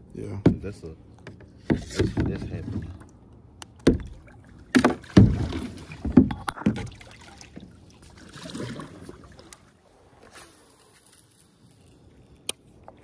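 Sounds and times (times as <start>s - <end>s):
kayak paddle splashes and knocks: 3.8s - 9.7s
soft swish of water: 6.8s - 12.1s.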